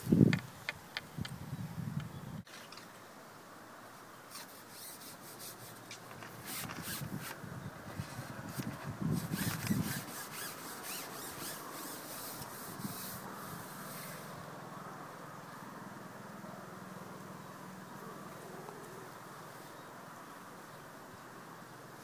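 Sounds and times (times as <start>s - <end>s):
fishing pole rubbing and bumping: 4.3s - 7.4s, 8.0s - 14.1s.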